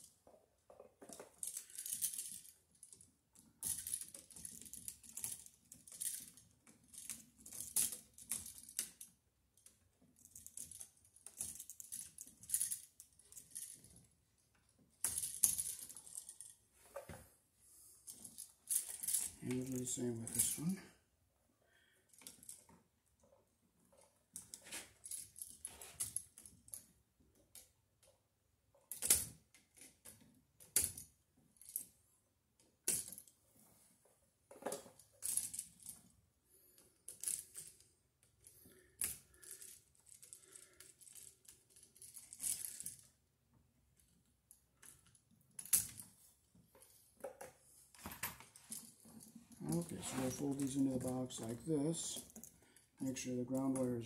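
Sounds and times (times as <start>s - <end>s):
metal straps clinking: 1.0s - 9.1s, 10.2s - 14.0s, 15.0s - 17.1s, 18.0s - 20.8s, 22.1s - 26.9s, 36.7s - 43.2s, 44.8s - 54.0s.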